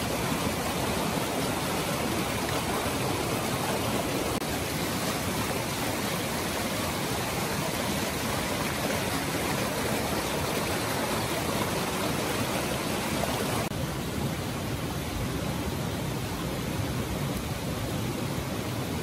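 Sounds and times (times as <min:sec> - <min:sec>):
stream rushing over rocks: 0:00.0 - 0:19.0.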